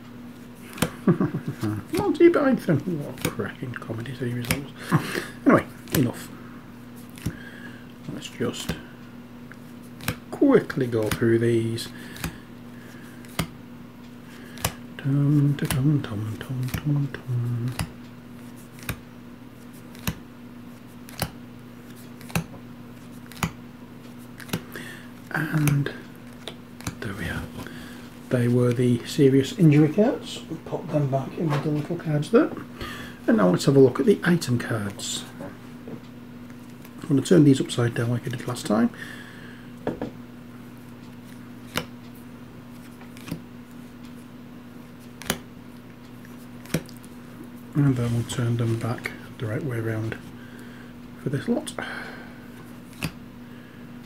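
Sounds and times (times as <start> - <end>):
low steady hum: 0.0 - 54.0
cards snapping down: 0.6 - 2.1, 3.1 - 3.4, 4.3 - 4.6, 5.9 - 6.1, 7.1 - 7.4, 9.9 - 10.2, 10.9 - 11.2, 12.1 - 12.4, 13.2 - 13.5, 14.4 - 14.8, 17.5 - 17.9, 18.5 - 19.0, 19.8 - 20.2, 21.0 - 22.5, 23.2 - 23.6, 24.4 - 24.7, 25.6 - 27.0, 41.7 - 41.9, 43.0 - 43.4, 45.1 - 45.4, 46.6 - 47.1, 52.9 - 53.2
playing cards handled: 0.6 - 6.2, 7.0 - 7.5, 8.2 - 8.9, 9.5 - 13.6, 14.3 - 19.0, 19.6 - 23.6, 24.2 - 24.8, 25.4 - 29.0, 41.1 - 42.0, 42.7 - 43.9, 44.9 - 45.4, 46.1 - 47.2, 52.6 - 53.2.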